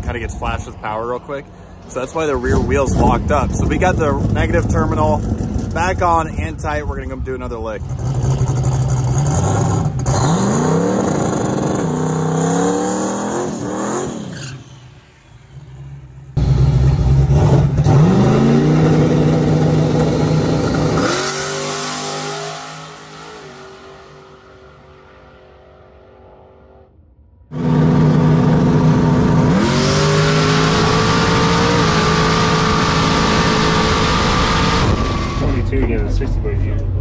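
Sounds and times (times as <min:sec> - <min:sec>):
race car engine revving: 0:07.8 - 0:14.7, 0:16.4 - 0:26.9, 0:27.5 - 0:37.0.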